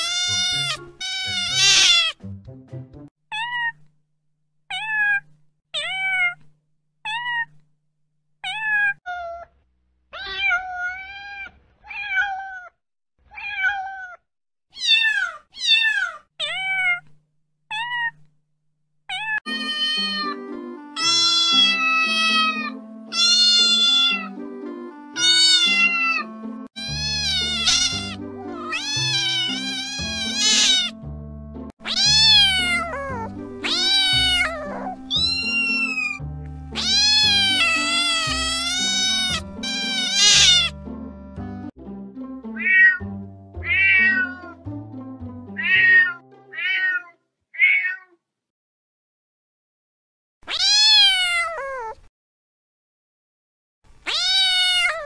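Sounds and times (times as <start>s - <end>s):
cat meowing: 0.0s - 2.2s, 4.7s - 6.5s, 7.1s - 7.6s, 8.4s - 17.1s, 17.7s - 18.2s, 19.1s - 20.4s, 21.0s - 24.3s, 25.2s - 31.0s, 31.8s - 40.8s, 42.6s - 43.0s, 43.6s - 44.6s, 45.6s - 48.2s, 50.4s - 52.1s, 54.0s - 55.0s
background music with bass: 36.2s - 36.8s, 40.7s - 44.0s, 44.6s - 45.6s.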